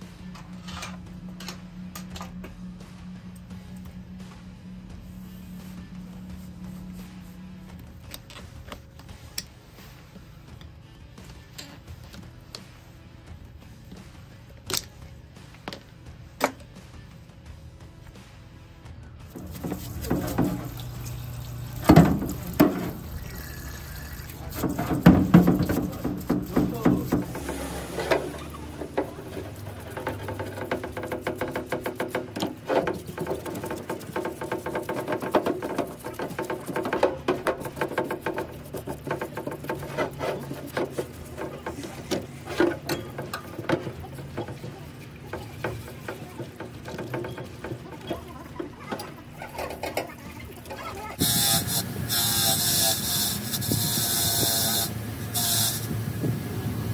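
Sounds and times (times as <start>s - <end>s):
liquid splashing and sloshing: 19.3s - 51.2s
metal part knocking against tub: 21.8s - 23.0s, 24.5s - 44.7s, 45.3s - 48.2s.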